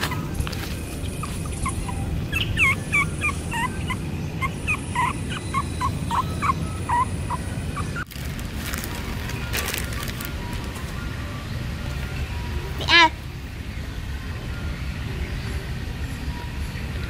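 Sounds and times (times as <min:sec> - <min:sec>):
puppy whimpering: 0:01.0 - 0:08.2.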